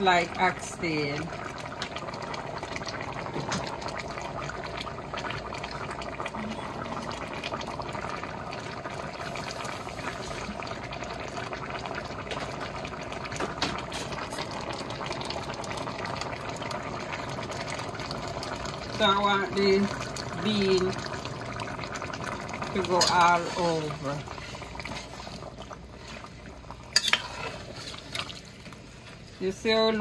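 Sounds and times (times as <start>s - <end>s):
gravy bubbling in a pot: 0.0s - 30.0s.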